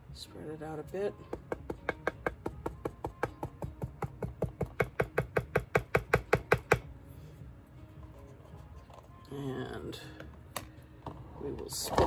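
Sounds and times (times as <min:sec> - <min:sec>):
tool tapping on canvas: 0:01.2 - 0:06.9.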